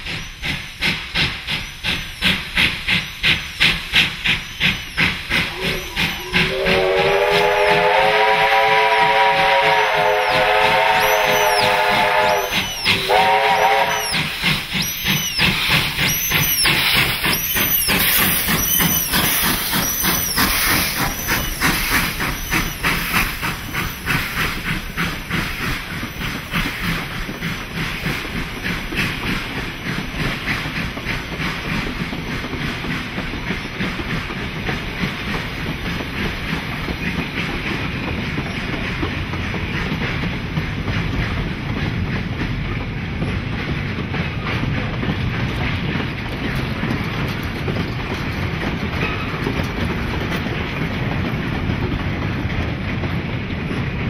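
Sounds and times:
steam hissing: 0:00.0 - 0:54.0
steam locomotive exhaust beats: 0:00.0 - 0:54.0
train carriages clickety-clack: 0:00.0 - 0:54.0
steam locomotive whistle: 0:05.4 - 0:15.5.

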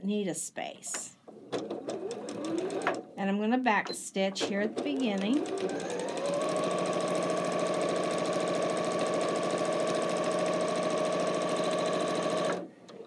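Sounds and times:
sewing machine stitching: 0:01.4 - 0:03.0, 0:04.4 - 0:12.7.

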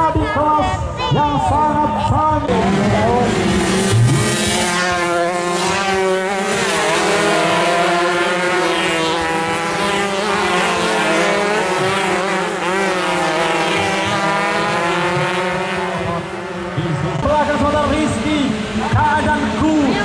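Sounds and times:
motorcycles revving past: 0:02.4 - 0:17.3.

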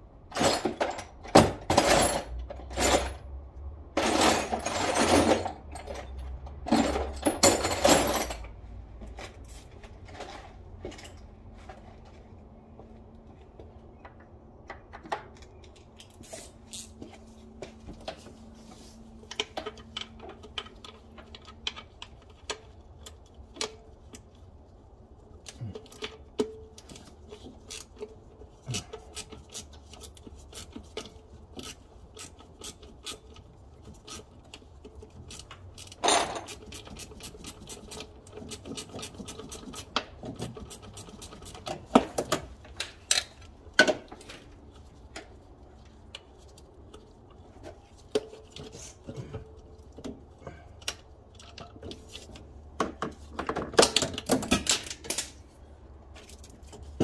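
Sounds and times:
hand tools clicking and scraping: 0:25.2 - 0:57.0.

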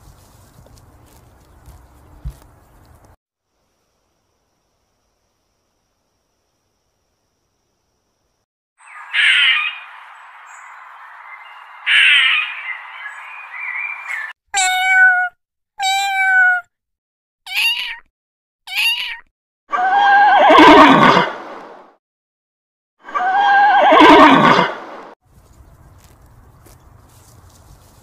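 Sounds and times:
cat meowing: 0:14.6 - 0:16.7, 0:17.5 - 0:18.1, 0:18.7 - 0:20.3
horse neighing: 0:19.8 - 0:21.3, 0:23.2 - 0:24.8.

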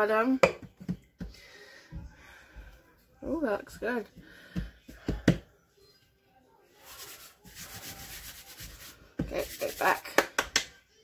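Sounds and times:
hands rubbing dough: 0:06.8 - 0:10.3.

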